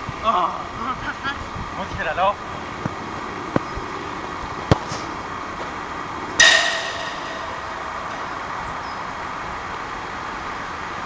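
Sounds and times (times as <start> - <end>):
football clanging on metal: 6.4 - 8.5.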